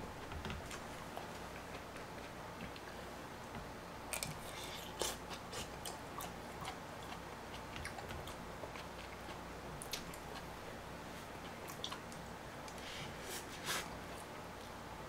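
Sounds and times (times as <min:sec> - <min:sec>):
person chewing noodles: 0:04.1 - 0:10.6, 0:11.2 - 0:12.9.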